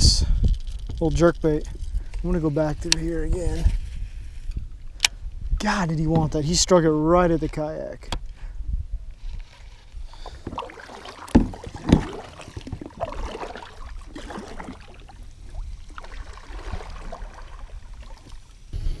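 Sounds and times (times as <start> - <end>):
paddle splashing through water: 9.5 - 18.7.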